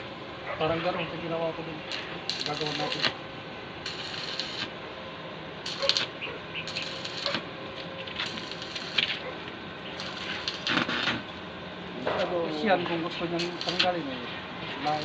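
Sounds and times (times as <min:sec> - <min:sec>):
welding arc crackling: 0:01.6 - 0:04.8, 0:05.6 - 0:11.5, 0:12.9 - 0:15.0.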